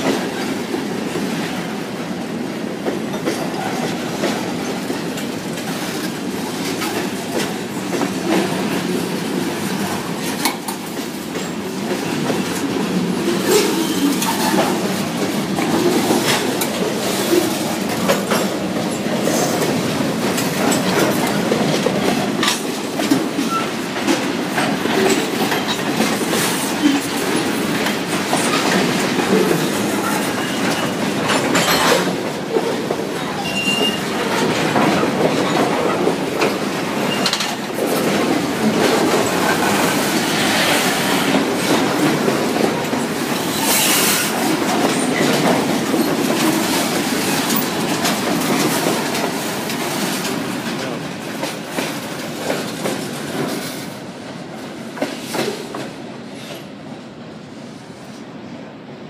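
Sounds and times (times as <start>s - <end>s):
train wheels clacking over rail joints: 0.0s - 54.0s, 54.9s - 56.6s
train wheel squeals: 13.4s - 14.8s, 23.4s - 23.8s, 29.9s - 32.1s, 33.2s - 34.3s, 37.0s - 37.5s, 43.4s - 44.4s.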